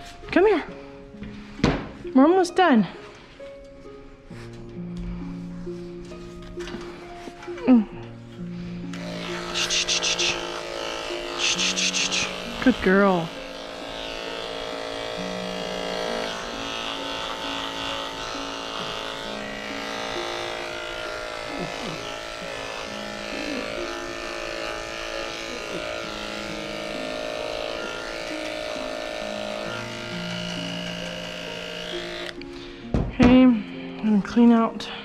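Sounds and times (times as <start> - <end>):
background music: 0.0 - 35.0
electric clippers buzzing: 8.8 - 32.6.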